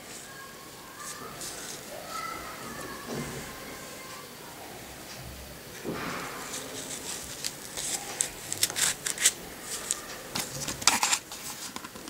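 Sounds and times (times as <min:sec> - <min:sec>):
plastic clip scraping fabric strap: 0:06.8 - 0:12.0.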